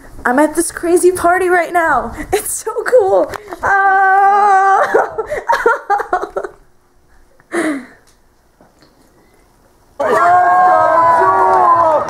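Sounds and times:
woman yelling: 2.6s - 5.1s
woman giggling and babbling: 3.4s - 6.6s
woman's falling cry: 3.6s - 5.4s.

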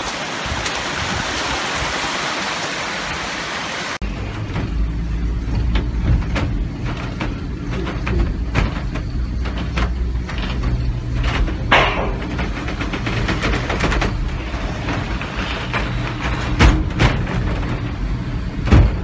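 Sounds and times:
cable car rumble and hum: 4.0s - 19.0s
wooden clacks and rattles: 4.0s - 19.0s
sharp knocks: 5.5s - 17.9s.

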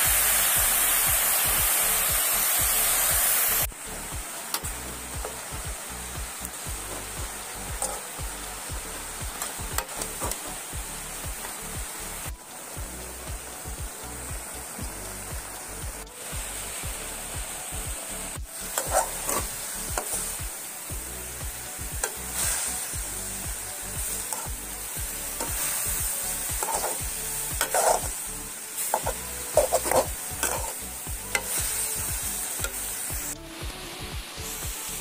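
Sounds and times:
leaves sizzling in a pan: 0.0s - 35.0s
steel spoon scraping a pan: 7.8s - 8.1s, 18.6s - 20.4s, 24.2s - 24.6s, 25.3s - 28.2s, 28.8s - 32.9s.

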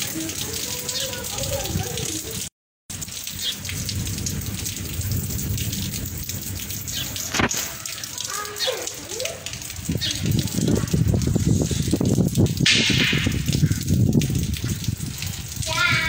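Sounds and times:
steady rain falling: 0.0s - 16.0s.

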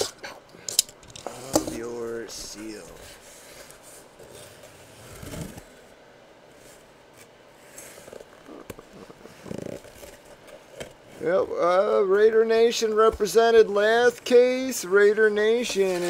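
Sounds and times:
cardboard scraping: 2.5s - 5.9s, 6.5s - 11.3s, 15.5s - 16.0s.

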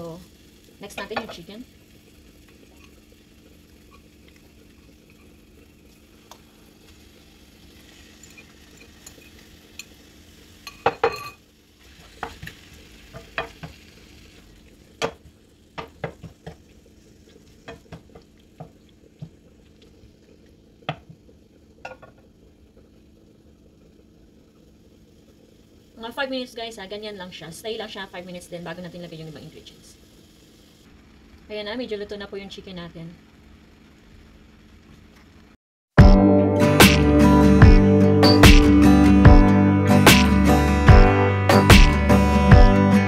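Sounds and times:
food sizzling in a frying pan: 0.0s - 35.1s
wooden spoon knocking against pan: 15.8s - 16.6s.

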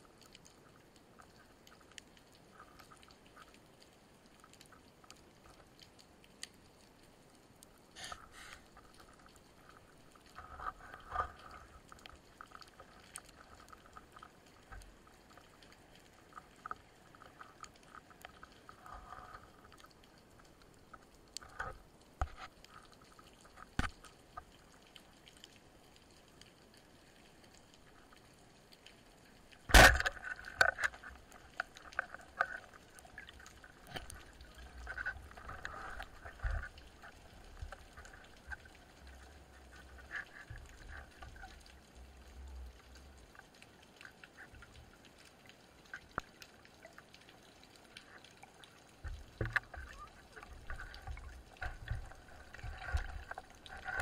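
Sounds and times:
speargun firing underwater: 29.7s - 30.2s.

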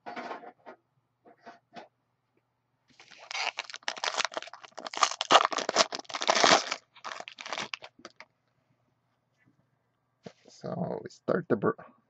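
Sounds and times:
foil wrapper crinkling: 3.0s - 8.2s.

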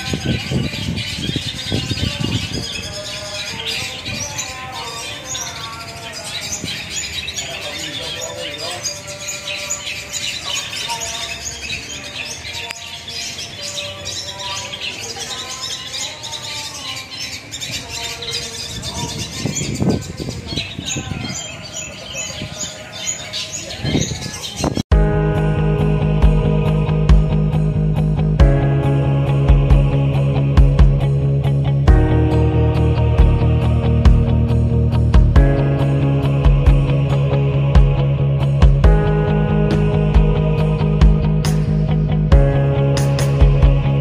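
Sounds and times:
birds chirping and squawking: 0.0s - 24.9s.

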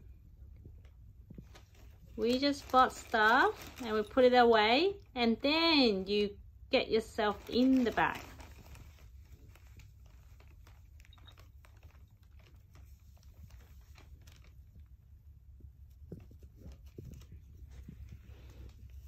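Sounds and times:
plastic bag crinkling: 1.3s - 5.1s, 7.0s - 15.1s.

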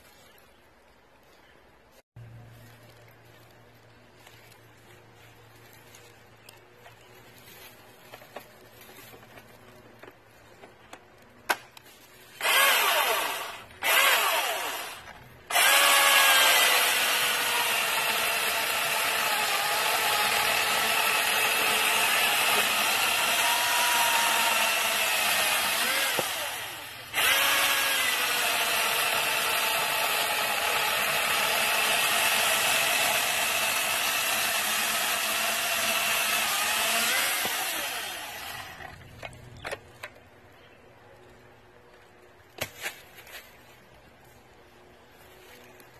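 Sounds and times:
chainsaw cutting through log: 12.3s - 39.1s
chainsaw revving: 12.4s - 39.0s.

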